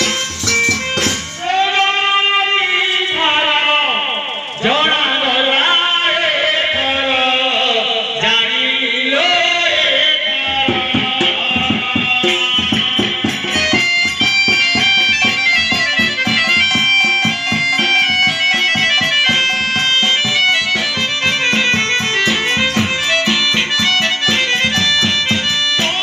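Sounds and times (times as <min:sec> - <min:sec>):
hand drums beating: 0:00.0 - 0:01.4, 0:10.5 - 0:26.0
electronic keyboard melody: 0:13.5 - 0:26.0.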